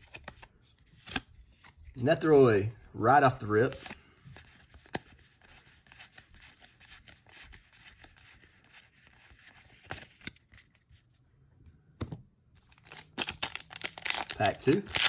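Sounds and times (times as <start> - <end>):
cards rubbing together: 3.4 - 11.1.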